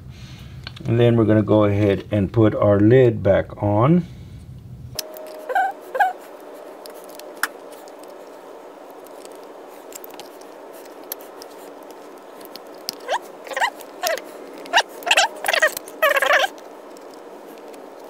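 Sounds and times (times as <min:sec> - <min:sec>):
small metal parts clicking: 0:08.9 - 0:18.0
cover squeaking on gasket: 0:12.9 - 0:16.5.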